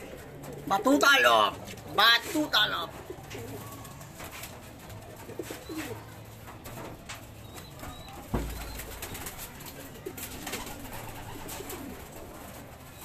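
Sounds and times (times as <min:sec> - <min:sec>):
pigeons cooing: 0:00.0 - 0:13.0
loud thump: 0:08.3 - 0:09.0.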